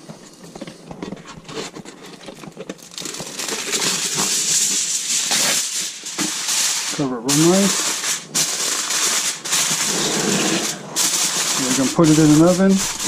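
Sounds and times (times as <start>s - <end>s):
aluminum foil crinkling: 0.0s - 13.0s.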